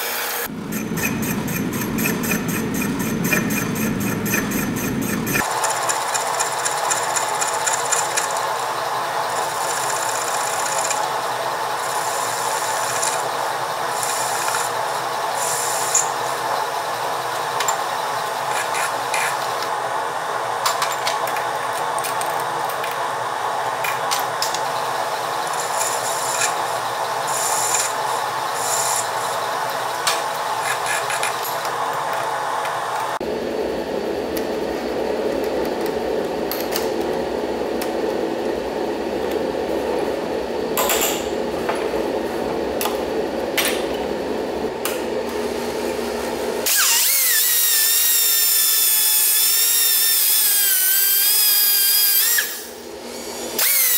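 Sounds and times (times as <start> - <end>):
cutting tool scraping metal: 0.0 - 5.4
lathe machine hum: 0.0 - 20.7
high-pitched scratchy cutting: 0.3 - 5.9.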